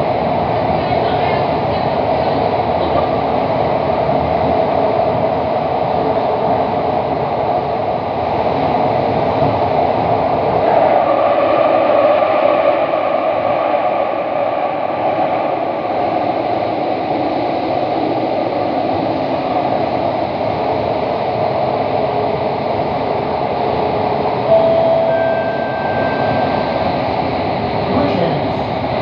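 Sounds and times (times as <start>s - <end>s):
train wheels rumbling on rail: 0.0s - 29.0s
short steady tone: 24.5s - 27.0s.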